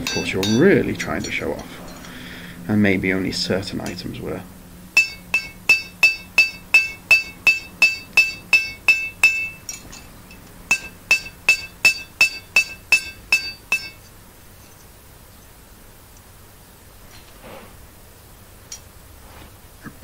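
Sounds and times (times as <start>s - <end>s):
hammer ringing on an anvil: 0.0s - 2.1s, 5.0s - 10.1s, 10.7s - 14.1s.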